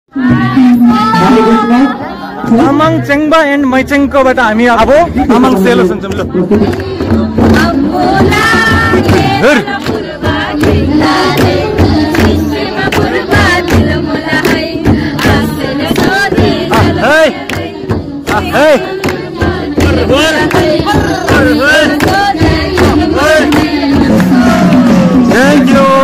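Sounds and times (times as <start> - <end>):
group singing: 0.1 - 3.2, 5.1 - 26.0
frame drum strikes: 5.2 - 26.0
hand claps: 6.0 - 7.0, 9.1 - 24.3.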